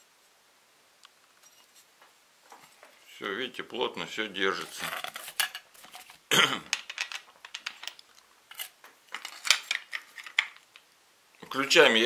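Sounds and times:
metal parts clicking and knocking: 6.7s - 10.8s.

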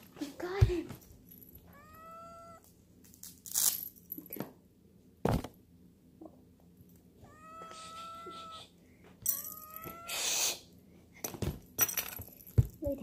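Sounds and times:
cat meowing: 1.7s - 2.7s, 7.2s - 8.7s, 9.3s - 10.5s
handling thumps and rustles: 5.2s - 5.6s, 11.2s - 13.0s.

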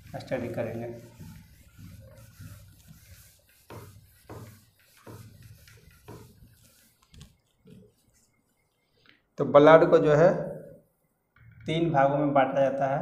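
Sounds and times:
writing strokes on a board: 0.0s - 9.0s.

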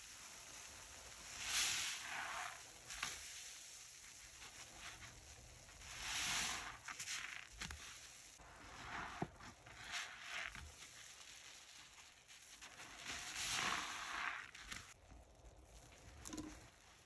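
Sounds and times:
wet sponge squishing: 0.2s - 17.0s.

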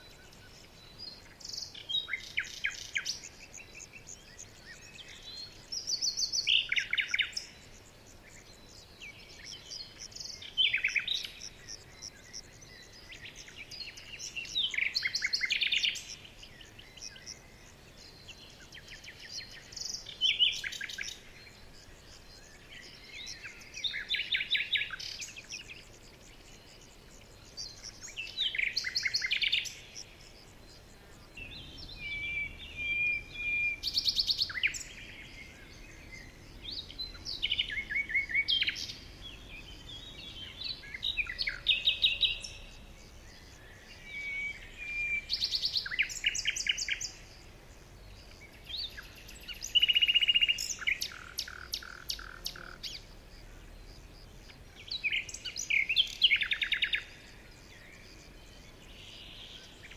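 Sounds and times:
songbird trilling song: 0.0s - 59.9s.

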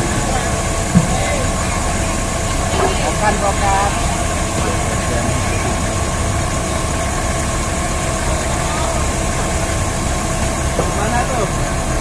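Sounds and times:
faint steady whine: 0.0s - 12.0s
forklift engines rumbling: 0.0s - 12.0s.

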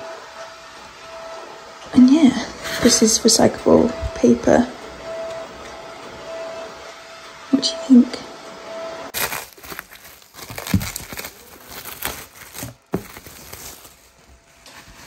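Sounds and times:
packing material rustling: 9.1s - 15.0s.

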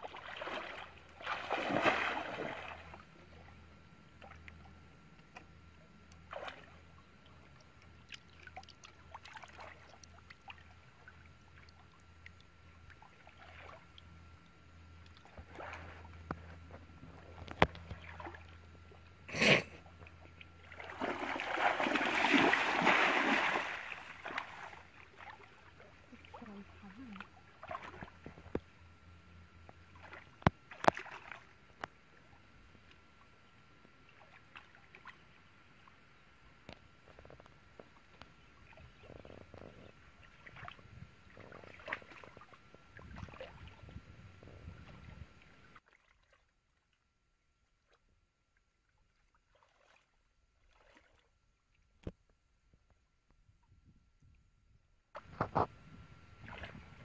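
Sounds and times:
muddy water splashing: 0.0s - 3.5s, 6.2s - 14.0s, 15.1s - 18.6s, 19.3s - 28.5s, 29.9s - 31.6s, 38.5s - 44.0s, 44.7s - 46.5s, 49.1s - 51.3s, 55.2s - 57.0s.

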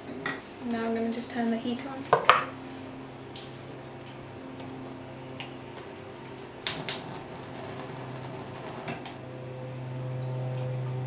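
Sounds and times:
low steady hum: 2.9s - 11.0s.

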